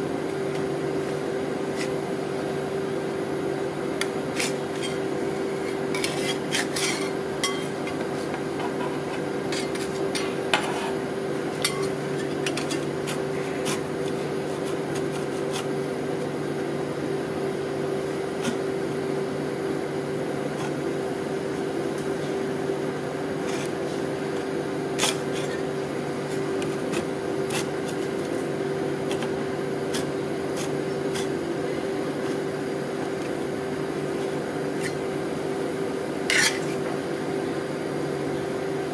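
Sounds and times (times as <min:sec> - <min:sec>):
machine hum: 0:00.0 - 0:38.9
spatula scraping cold plate: 0:05.7 - 0:07.7, 0:08.6 - 0:11.0, 0:11.6 - 0:15.8, 0:36.3 - 0:36.8.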